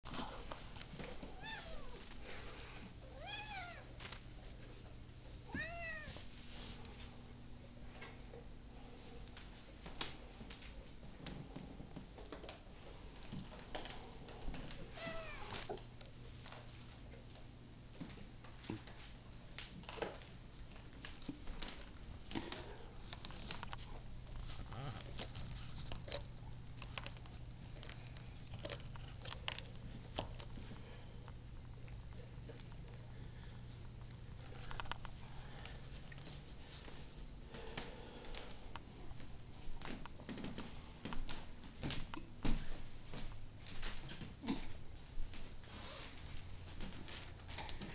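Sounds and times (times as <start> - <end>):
cat meowing: 1.4 - 2.0, 3.1 - 3.9, 5.5 - 6.2, 15.0 - 15.5
dog gnawing a bone: 22.5 - 30.6.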